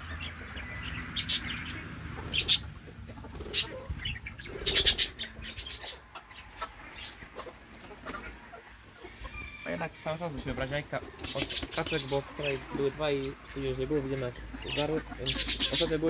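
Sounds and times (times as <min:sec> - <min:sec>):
chickens clucking: 0:00.0 - 0:16.0
sharp rustling bursts: 0:10.4 - 0:12.3.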